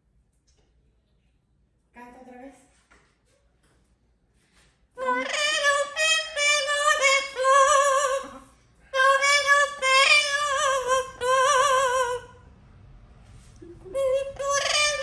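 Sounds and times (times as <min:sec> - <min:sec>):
parrot singing: 0:05.0 - 0:08.4, 0:09.0 - 0:12.3, 0:13.8 - 0:15.0.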